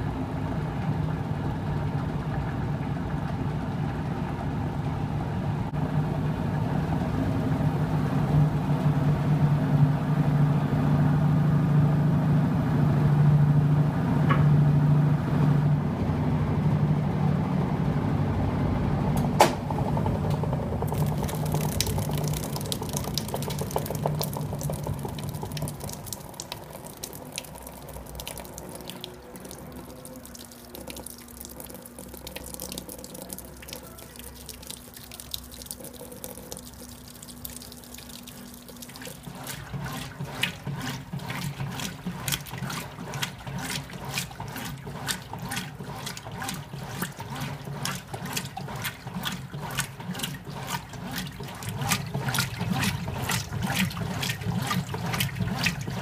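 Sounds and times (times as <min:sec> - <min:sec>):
washer agitator sloshing water: 0:19.4 - 0:56.0
water pouring into washer tub: 0:19.9 - 0:56.0.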